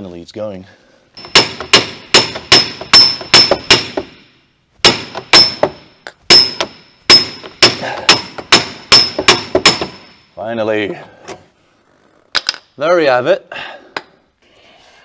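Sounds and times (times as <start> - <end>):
hammer striking steel bar: 1.2 - 10.2.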